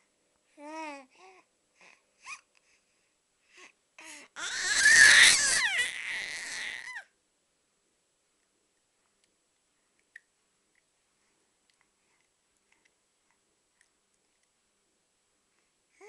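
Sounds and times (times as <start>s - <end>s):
baby squealing: 4.4s - 7.0s.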